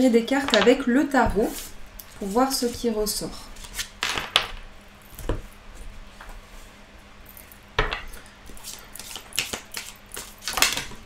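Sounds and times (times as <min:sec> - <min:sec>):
cards being shuffled: 0:08.5 - 0:11.0.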